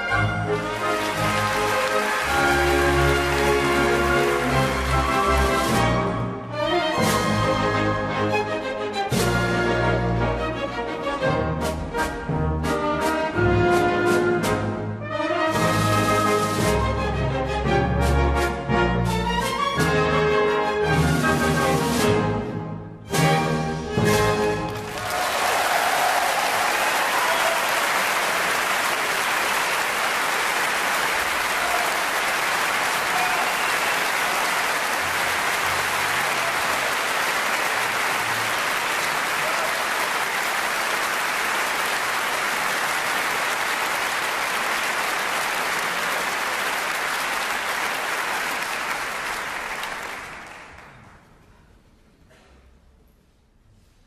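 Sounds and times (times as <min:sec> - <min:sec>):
audience applauding: 0:00.0 - 0:05.9, 0:24.7 - 0:51.3.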